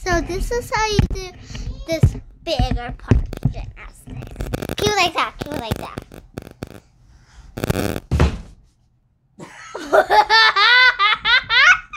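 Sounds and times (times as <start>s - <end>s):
girl laughing loudly: 9.4s - 11.9s.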